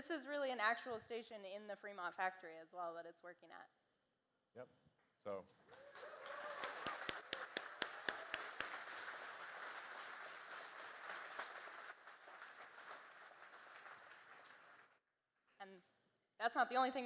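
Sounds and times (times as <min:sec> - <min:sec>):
audience applauding: 0:05.7 - 0:15.0.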